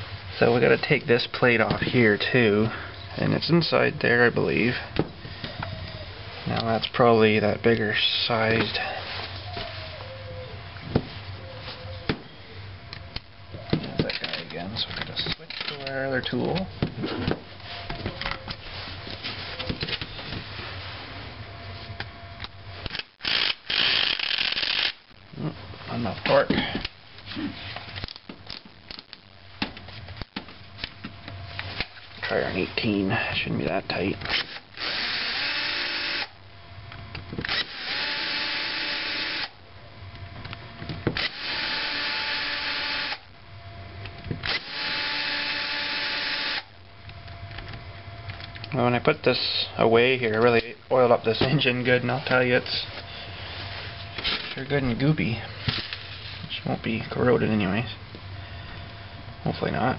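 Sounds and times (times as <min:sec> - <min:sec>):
cordless drill whirring: 0:22.9 - 0:25.0, 0:34.3 - 0:36.3, 0:37.5 - 0:39.5, 0:41.2 - 0:43.3, 0:44.5 - 0:46.7.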